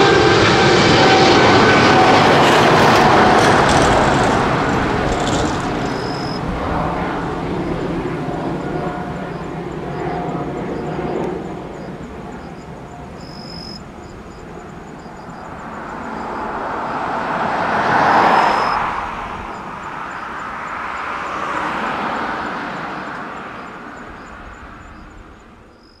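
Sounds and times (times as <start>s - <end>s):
distant jet engines rumbling: 0.0s - 26.0s.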